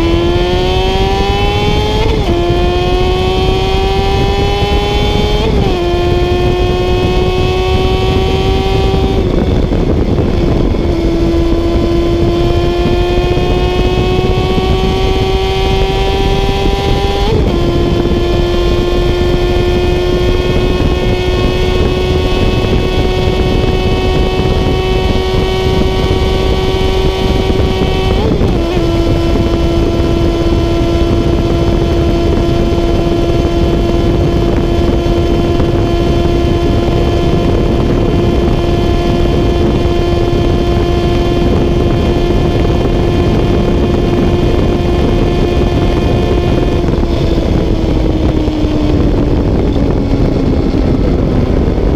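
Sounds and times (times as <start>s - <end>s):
motorcycle engine at high revs: 0.0s - 51.9s
rushing wind: 0.0s - 51.9s.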